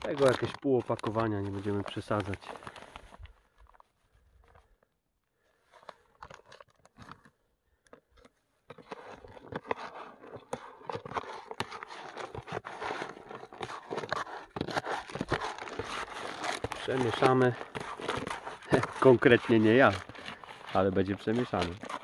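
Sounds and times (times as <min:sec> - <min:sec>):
dry mix being poured: 0:00.0 - 0:03.8, 0:08.8 - 0:22.0
scoop scraping through bait: 0:08.7 - 0:22.0.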